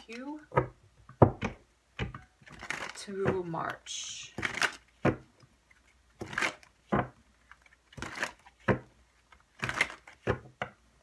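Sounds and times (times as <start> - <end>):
cards shuffling: 2.4 - 3.4, 4.3 - 10.5.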